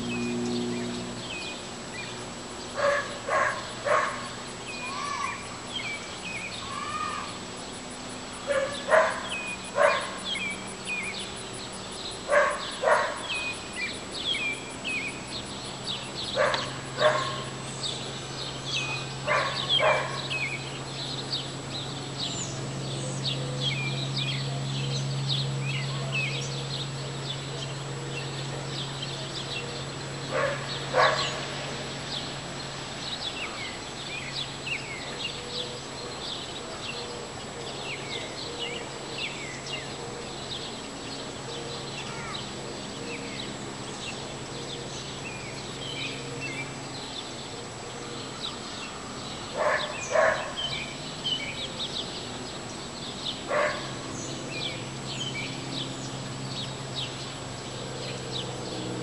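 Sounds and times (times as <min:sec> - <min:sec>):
birds chirping: 0:00.0 - 0:59.0
low steady hum: 0:00.0 - 0:59.0
dog barking: 0:02.8 - 0:04.3, 0:08.5 - 0:10.2, 0:12.3 - 0:13.3, 0:16.4 - 0:17.5, 0:19.3 - 0:20.3, 0:30.3 - 0:31.4, 0:49.6 - 0:50.6, 0:53.5 - 0:53.9.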